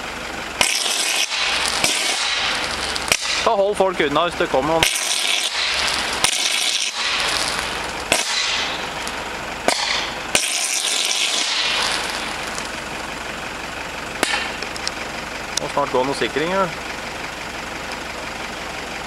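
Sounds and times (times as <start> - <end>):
electrical arcing hiss: 0.6 - 3.7, 4.8 - 12.8
sharp electrical cracks: 0.6 - 3.9, 4.7 - 12.9, 14.2 - 14.9.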